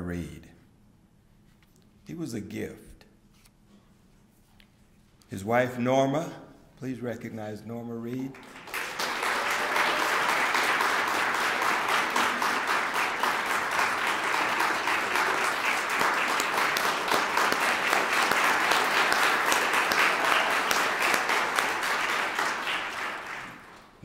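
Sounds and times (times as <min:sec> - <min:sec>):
audience applauding: 0:08.3 - 0:24.0.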